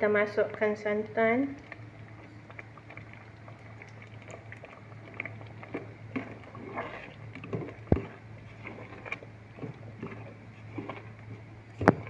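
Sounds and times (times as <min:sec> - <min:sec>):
low hum: 0:00.0 - 0:12.0
ladle scraping pot: 0:05.1 - 0:12.0.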